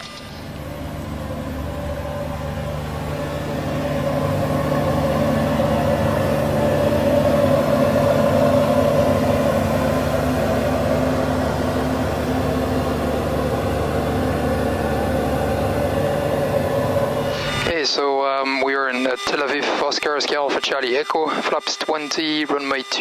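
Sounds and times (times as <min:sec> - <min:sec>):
aircraft cabin drone: 0:00.0 - 0:23.0.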